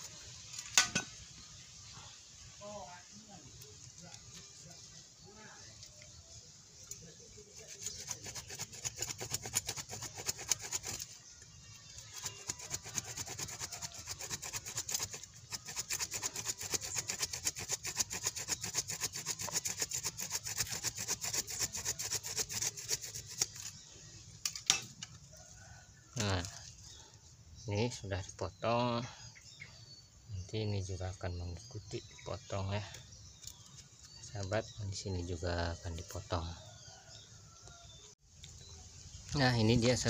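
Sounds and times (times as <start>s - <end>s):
hand saw cutting root: 6.9s - 23.8s.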